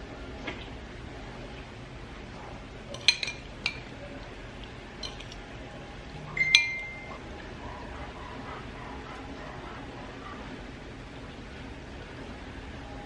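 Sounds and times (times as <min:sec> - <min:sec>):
dishes and cutlery clinking: 0:02.9 - 0:03.9, 0:05.0 - 0:05.4, 0:06.3 - 0:07.2.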